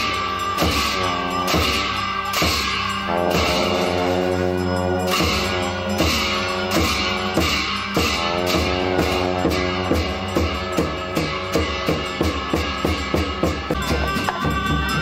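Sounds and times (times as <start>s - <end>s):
drum beat: 0.0s - 15.0s.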